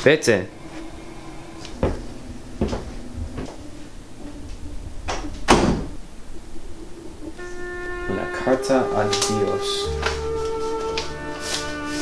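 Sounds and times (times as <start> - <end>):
faint low hum: 0.0 - 11.2
dull thuds: 1.7 - 3.8.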